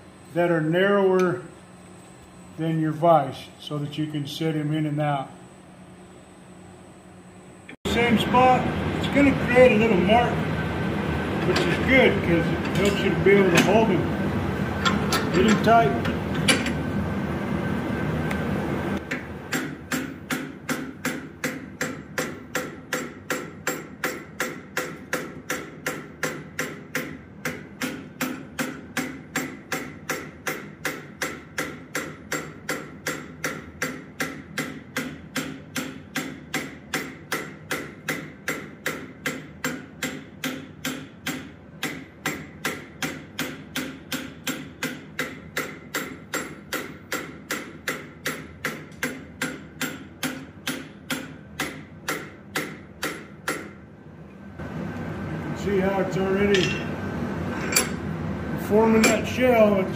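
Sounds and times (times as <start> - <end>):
hammer striking hot metal: 19.1 - 53.8, 56.4 - 56.9, 59.0 - 59.4.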